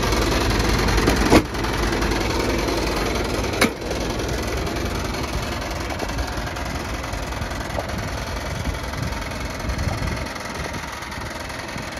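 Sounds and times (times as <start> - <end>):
diesel truck engine idling: 0.0 - 11.9.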